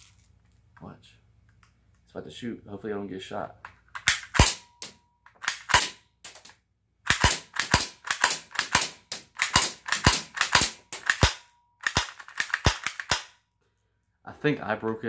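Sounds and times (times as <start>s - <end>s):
airsoft pistol cocking and firing: 3.9s - 6.5s, 7.1s - 13.4s.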